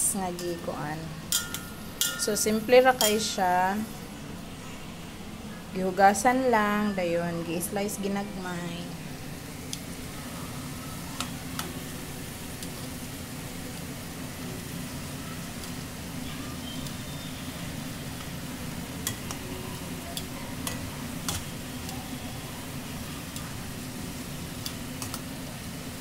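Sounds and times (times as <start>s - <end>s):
food sizzling in hot oil: 0.0s - 4.0s, 6.8s - 26.0s
metal tongs clicking on pan: 1.3s - 3.3s, 19.0s - 19.4s, 20.1s - 22.0s, 24.6s - 25.2s.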